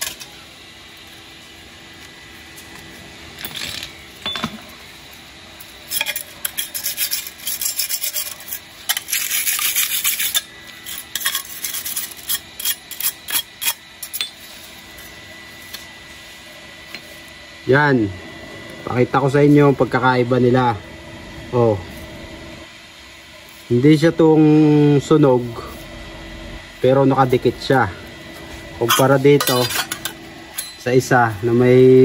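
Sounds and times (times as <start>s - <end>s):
wire brush scraping metal: 5.8s - 14.8s.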